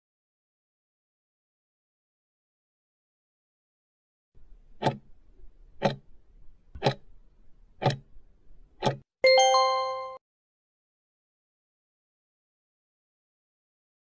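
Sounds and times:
clock ticks: 0:04.8 - 0:05.1, 0:05.8 - 0:06.1, 0:06.8 - 0:07.1, 0:07.8 - 0:08.1, 0:08.8 - 0:09.0
bell-like chime: 0:09.2 - 0:10.2.

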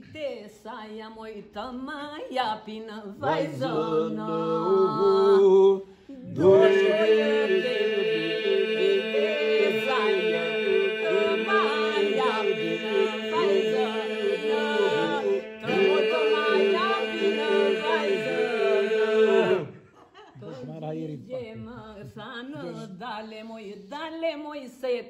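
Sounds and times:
group singing unaccompanied: 0:03.1 - 0:19.9.

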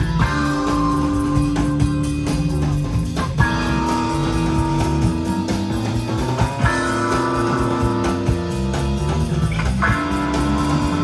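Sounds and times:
guitar sustained chords: 0:00.0 - 0:11.0
steady beat: 0:00.0 - 0:11.0.

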